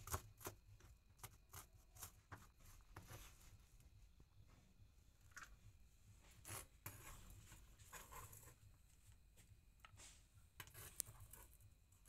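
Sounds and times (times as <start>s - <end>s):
blade scraping cutting board: 6.4s - 8.6s.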